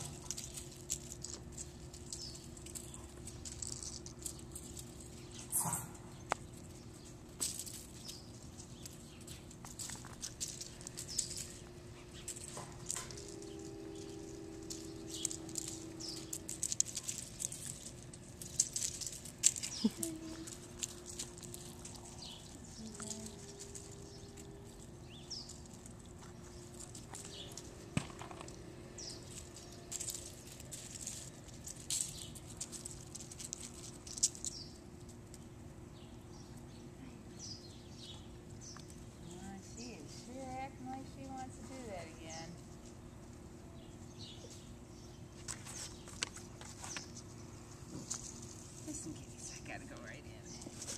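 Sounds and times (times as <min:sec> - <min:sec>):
puppy claws pattering on concrete: 0:00.0 - 0:36.8, 0:37.4 - 0:50.9
steady low hum: 0:00.0 - 0:50.9.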